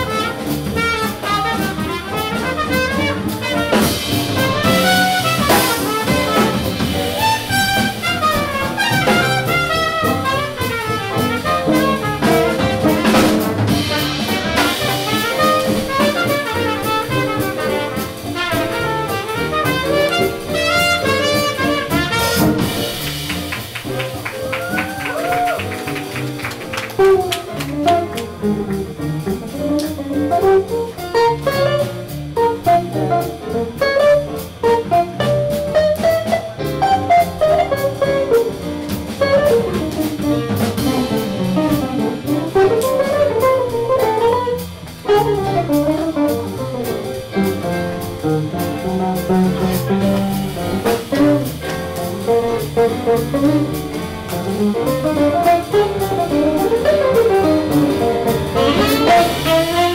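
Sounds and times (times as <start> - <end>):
trumpet: 0.0 - 28.5, 30.0 - 38.6, 39.2 - 59.9
guitar: 0.0 - 59.9
piano: 0.0 - 59.9
upright bass: 0.0 - 59.9
saxophone: 24.7 - 28.3, 42.4 - 46.6, 54.7 - 59.9.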